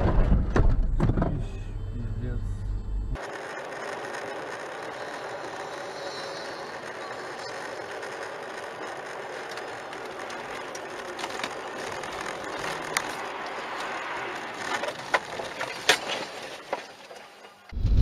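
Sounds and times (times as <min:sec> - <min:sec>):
road and wind noise in car: 0:06.6 - 0:17.2.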